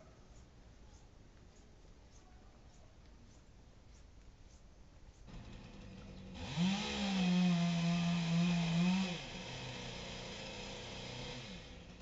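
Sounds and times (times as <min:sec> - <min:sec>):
chainsaw engine revving: 0:05.3 - 0:12.0.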